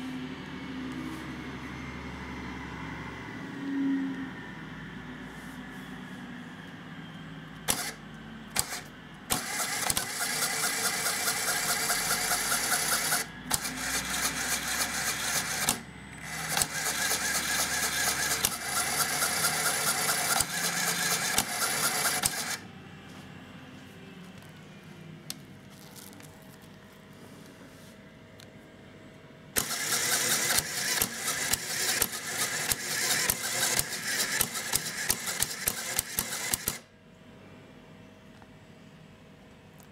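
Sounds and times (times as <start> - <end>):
electric motor driving plastic gears: 7.6 - 22.6, 29.6 - 36.9.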